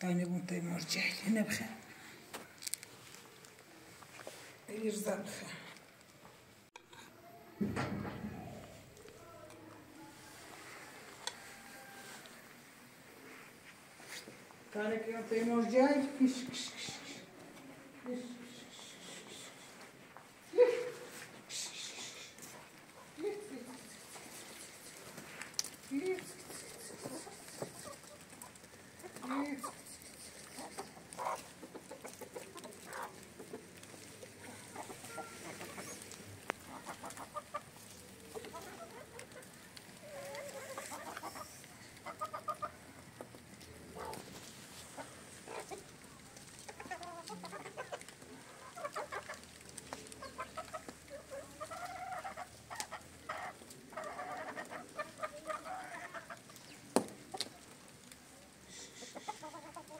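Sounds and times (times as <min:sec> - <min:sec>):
chickens clucking: 0:21.0 - 0:59.9.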